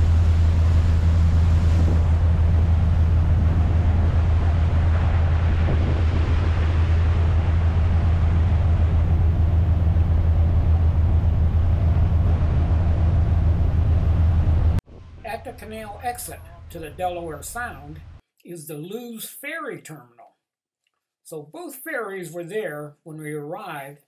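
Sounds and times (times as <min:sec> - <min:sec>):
boat diesel engine drone: 0:00.0 - 0:18.2.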